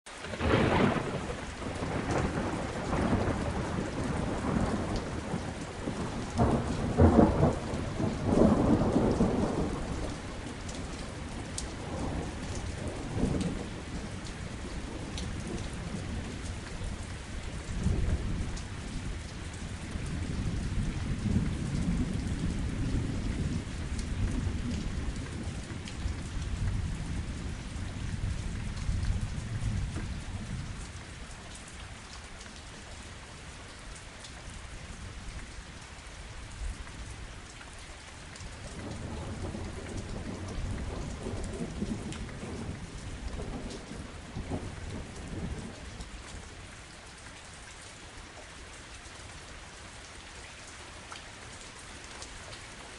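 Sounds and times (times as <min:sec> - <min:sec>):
steady rain: 0:00.0 - 0:52.9
thunder rumbling: 0:00.2 - 0:30.9, 0:38.6 - 0:46.0.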